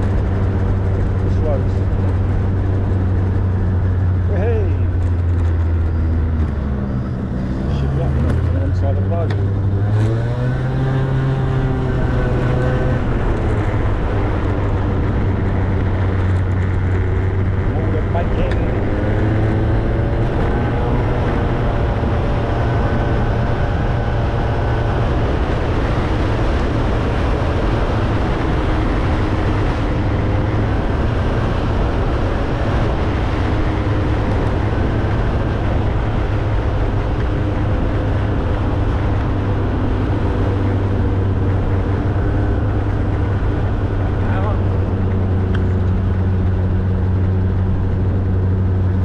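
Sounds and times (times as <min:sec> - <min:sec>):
motorbike engine drone: 0:00.0 - 0:49.0
steady rushing noise: 0:00.0 - 0:49.0.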